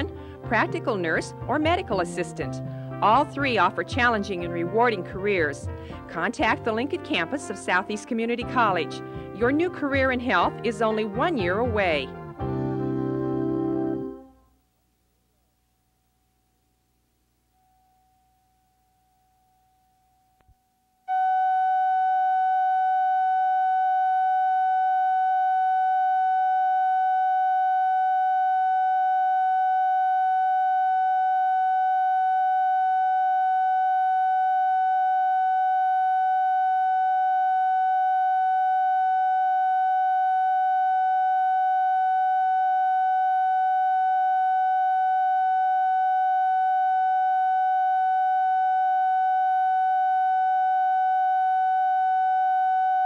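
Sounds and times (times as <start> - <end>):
steady test tone: 17.4 - 53.0.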